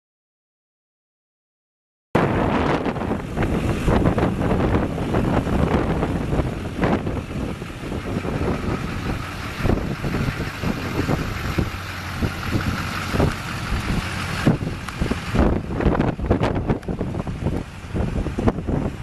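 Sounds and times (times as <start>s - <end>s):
wind buffeting microphone: 2.2s - 19.0s
diesel truck engine idling: 3.0s - 19.0s.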